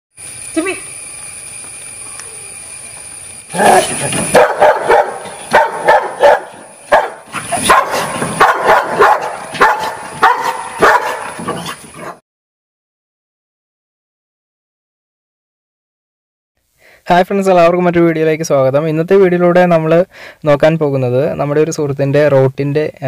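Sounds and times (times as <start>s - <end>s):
dog barking: 3.6s - 12.2s.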